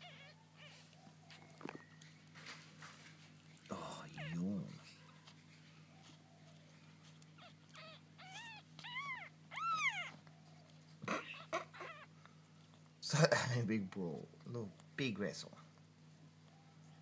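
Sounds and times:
kittens mewing: 0.0 - 1.4, 3.7 - 5.4, 7.0 - 12.4
scuffling noises: 0.6 - 7.7.

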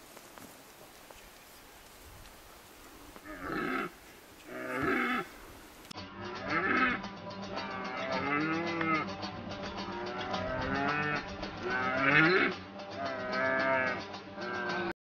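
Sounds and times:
deer stag roaring: 3.2 - 5.6
strummed lute music: 6.0 - 14.9.

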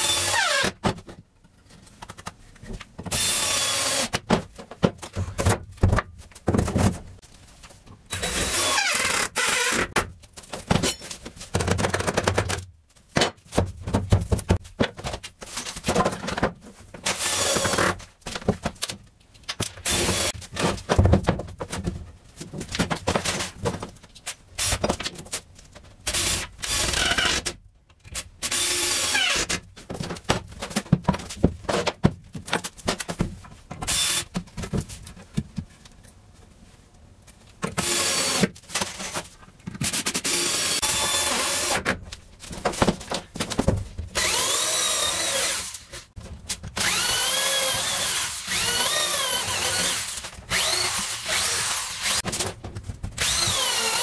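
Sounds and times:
electric drill whining: 44.2 - 45.8, 46.8 - 52.2, 53.2 - 54.0.

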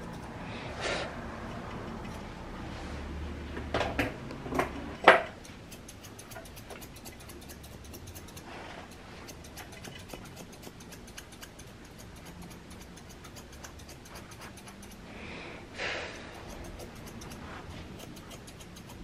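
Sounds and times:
scissors snipping fur: 1.6 - 2.3, 5.0 - 15.1, 16.1 - 19.0.

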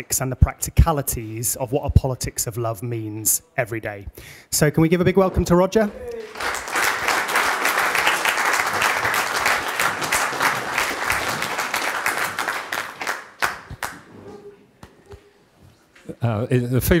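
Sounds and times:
audience applauding: 5.9 - 14.2.

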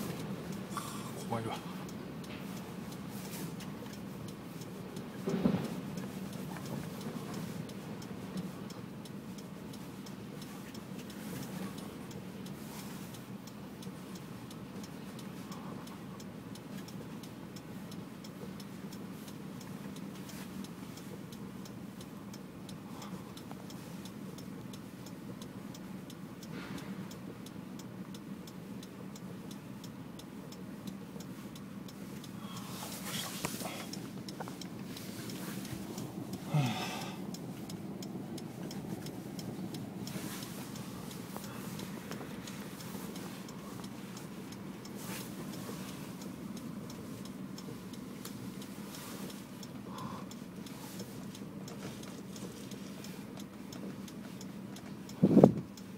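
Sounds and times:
car cabin hum: 0.0 - 55.9
fast even ticking: 27.1 - 55.9.

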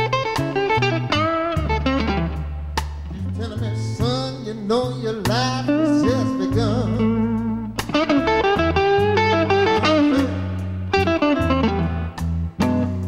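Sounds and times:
electric blues band playing: 0.0 - 13.0
electric guitar run: 7.4 - 13.0.

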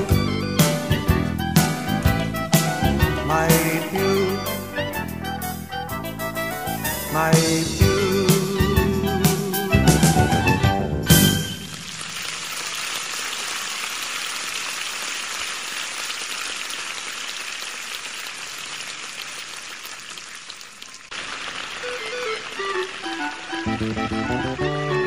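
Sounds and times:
guitar music: 0.0 - 11.4, 22.0 - 25.0
steady rain falling: 11.1 - 25.0.

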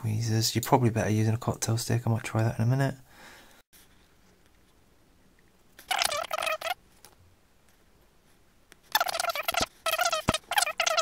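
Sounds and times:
bird chattering: 5.9 - 6.8, 9.0 - 11.0.

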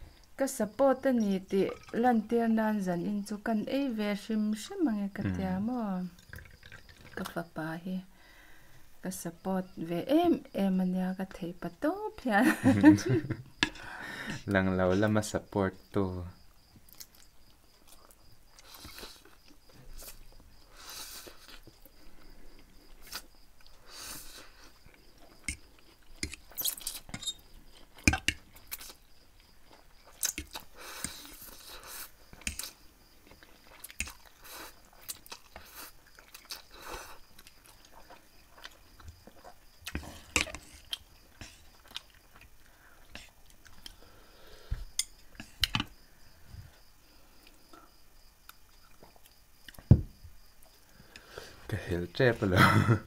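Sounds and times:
wet chewing smacks: 32.3 - 44.0.

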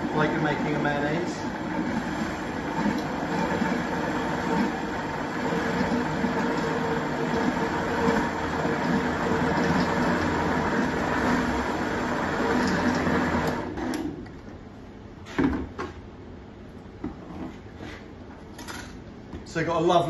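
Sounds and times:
blender motor running: 0.0 - 14.0.

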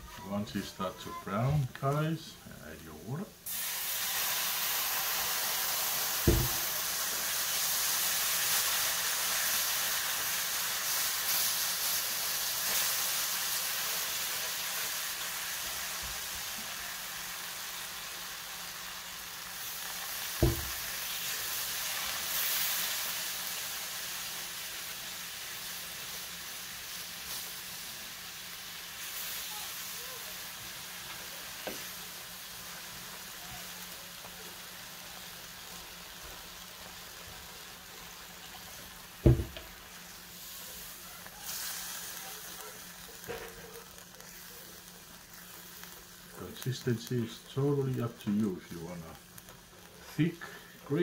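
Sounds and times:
water sizzling in a hot pan: 3.3 - 51.0
dull knocks: 6.3 - 6.6, 20.4 - 20.8, 39.3 - 39.7.

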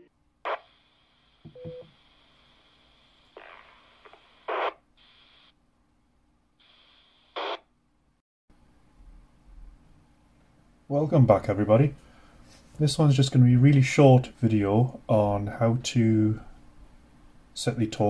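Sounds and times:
radio static bursts: 0.0 - 5.5, 6.6 - 7.6
brief beep: 1.5 - 1.8.

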